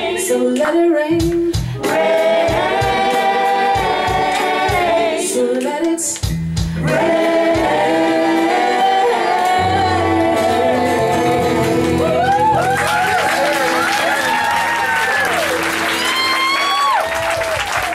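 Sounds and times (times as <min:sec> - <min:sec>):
woman singing: 0:00.0 - 0:02.2, 0:02.8 - 0:06.2, 0:08.6 - 0:12.6
guitars: 0:01.2 - 0:17.0
electric bass: 0:06.2 - 0:16.1
keyboard: 0:06.7 - 0:16.8.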